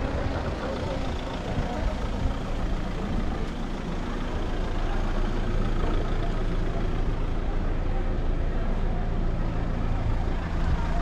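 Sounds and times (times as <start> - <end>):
faint voices: 0.0 - 11.0
street noise: 0.0 - 11.0
vehicle engine humming: 0.0 - 11.0.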